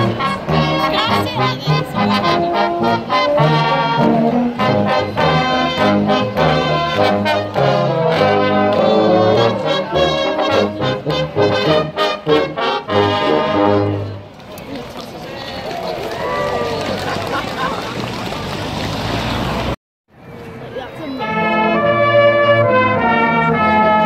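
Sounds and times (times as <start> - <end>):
deep tuba notes: 0.0 - 14.2, 21.2 - 24.0
brass band playing: 0.0 - 14.3, 21.2 - 24.0.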